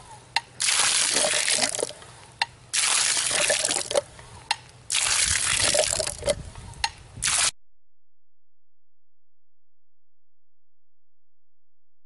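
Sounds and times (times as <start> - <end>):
water gushing from hand pump: 0.6 - 2.0, 2.8 - 4.0, 4.9 - 6.4.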